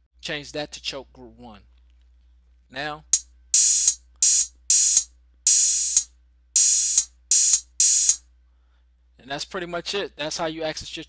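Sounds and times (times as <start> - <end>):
closed hi-hat hit: 3.6 - 8.2
open hi-hat: 3.6 - 8.2.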